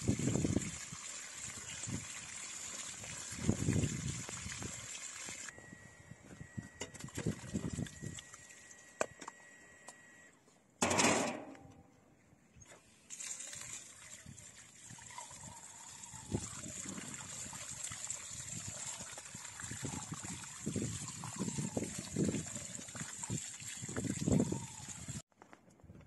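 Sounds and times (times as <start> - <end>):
water trickling: 0.0 - 5.5, 13.1 - 25.2.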